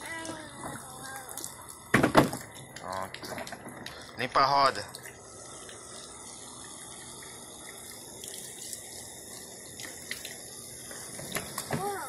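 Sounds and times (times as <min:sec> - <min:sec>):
hose water splashing on plastic: 0:00.0 - 0:12.0.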